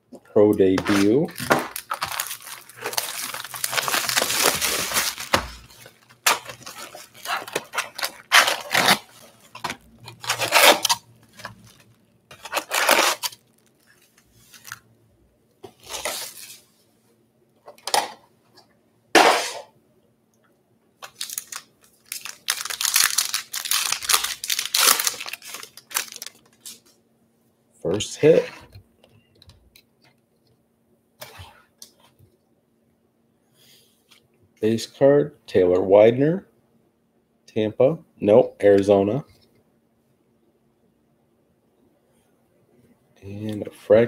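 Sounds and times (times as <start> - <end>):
foil packs crinkling and rustling: 0.6 - 14.8, 15.7 - 16.7, 21.0 - 26.9
foil pack tearing: 0.8 - 13.7, 21.0 - 26.8.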